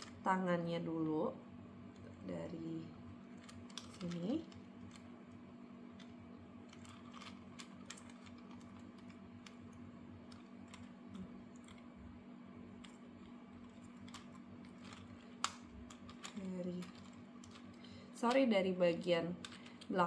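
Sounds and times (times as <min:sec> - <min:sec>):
faint steady hum: 0:00.0 - 0:20.0
plastic toy parts clicking: 0:14.0 - 0:17.7.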